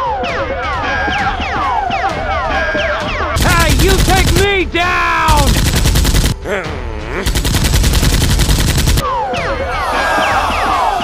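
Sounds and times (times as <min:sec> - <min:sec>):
rapid automatic gunfire: 0:03.4 - 0:04.6, 0:05.3 - 0:06.4, 0:07.3 - 0:09.0
whistle-like tones: 0:09.0 - 0:11.0.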